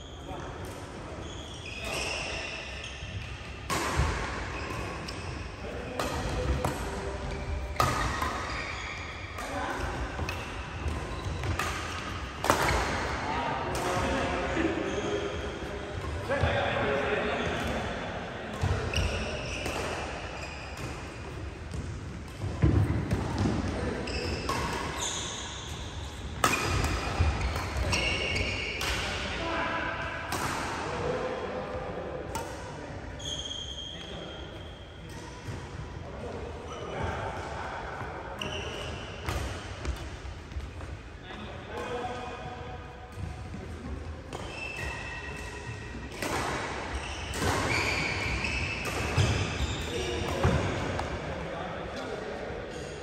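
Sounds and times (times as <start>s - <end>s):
shoes squeaking on court: 1.2s - 3.5s, 7.3s - 12.8s, 18.6s - 28.8s, 33.2s - 35.5s, 38.4s - 40.8s, 44.3s - 51.2s
racket hitting shuttlecock: 3.2s - 14.1s, 18.5s - 29.2s, 30.3s - 30.9s, 32.3s - 32.8s, 38.7s - 40.9s, 44.3s - 51.2s.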